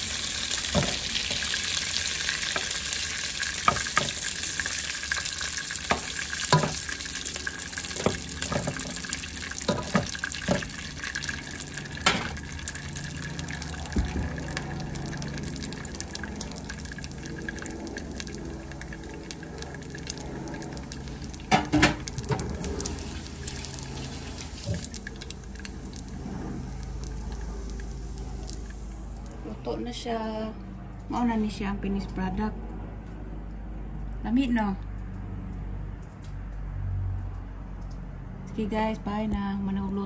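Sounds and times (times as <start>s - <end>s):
oil sizzling in a pot: 0.0s - 29.3s.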